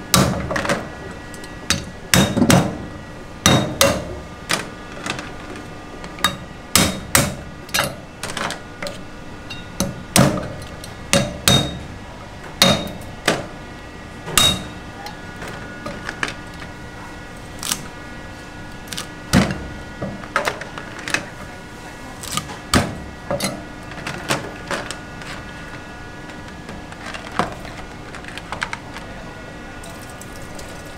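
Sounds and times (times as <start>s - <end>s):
cleaver chopping on wooden block: 11.1s - 11.8s.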